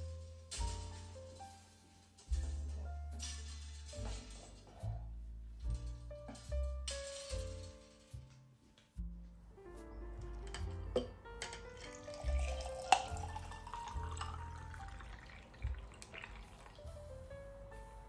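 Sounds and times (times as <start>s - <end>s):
calm background music: 0.0s - 18.0s
ice clinking: 11.0s - 16.8s
water pouring into a jar: 11.8s - 16.9s.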